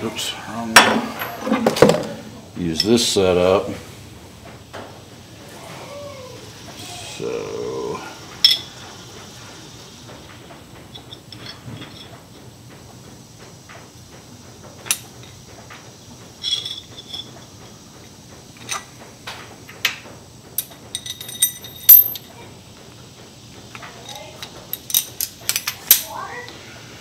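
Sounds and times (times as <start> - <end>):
metal hardware clinking: 8.4 - 8.7, 16.4 - 17.4, 20.6 - 22.3, 24.0 - 26.2.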